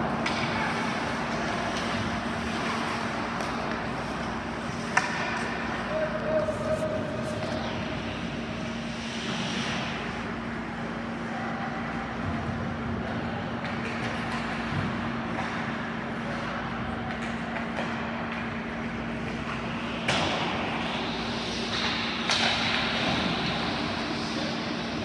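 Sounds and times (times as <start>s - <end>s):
arena hum: 0.0s - 11.7s.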